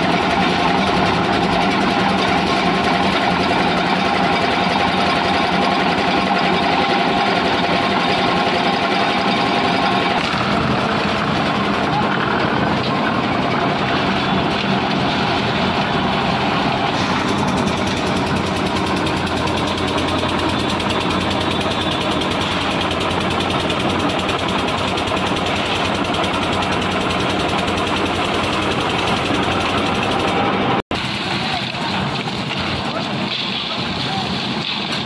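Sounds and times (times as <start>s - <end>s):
diesel engine running under load: 0.0s - 35.0s
hiss: 16.9s - 17.4s.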